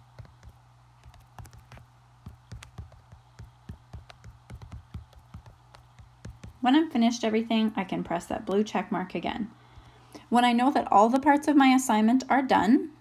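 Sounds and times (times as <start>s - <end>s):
fingertips tapping glass screen: 0.0s - 6.7s
faint low hum: 0.0s - 13.0s.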